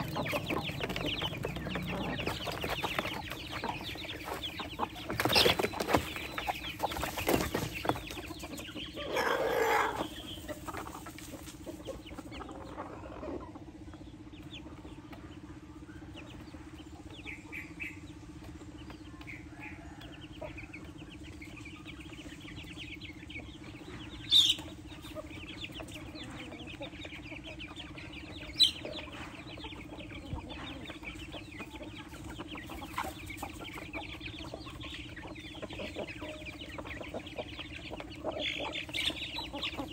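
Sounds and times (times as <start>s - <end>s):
chicks peeping: 0.0s - 39.9s
hens clucking: 0.0s - 39.9s
loud hen call: 9.0s - 10.2s.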